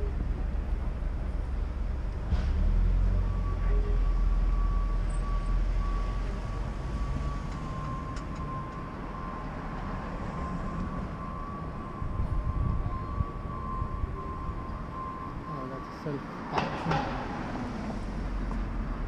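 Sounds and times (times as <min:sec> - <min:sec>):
steady traffic noise: 0:00.0 - 0:19.0
high-pitched tone: 0:07.0 - 0:16.4
car passing by: 0:16.4 - 0:19.0.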